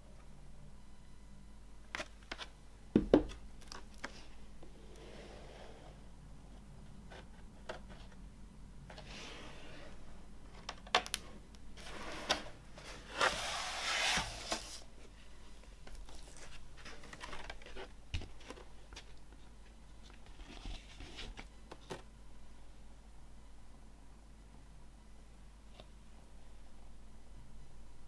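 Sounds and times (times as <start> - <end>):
cardboard sleeve sliding on table: 11.8 - 14.8.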